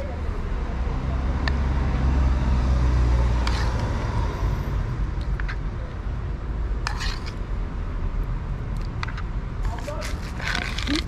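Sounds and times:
road traffic rumble: 0.0 - 11.0
brief scrape: 3.4 - 3.8, 6.8 - 7.4.

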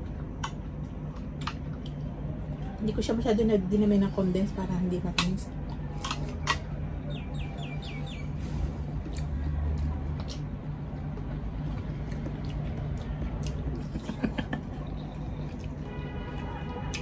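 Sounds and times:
chewing and mouth sounds: 0.0 - 2.8, 9.0 - 17.0.

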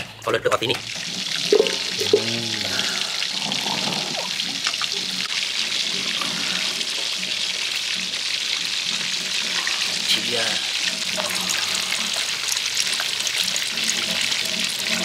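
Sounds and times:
tap water running into sink: 0.7 - 2.9.

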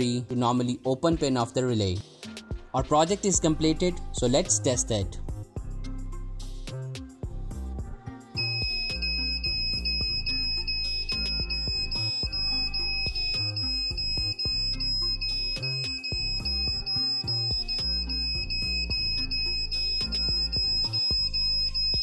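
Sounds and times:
smoke alarm buzzer tone: 8.4 - 22.0.

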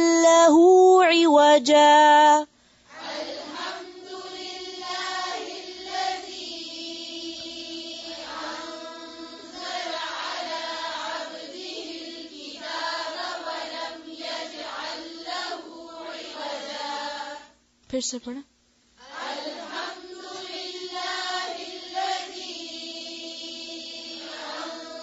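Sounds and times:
person chanting recitation: 0.0 - 2.5.

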